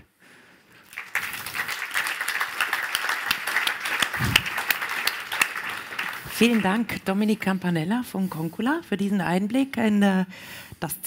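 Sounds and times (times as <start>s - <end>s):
audience applauding: 0.8s - 7.0s.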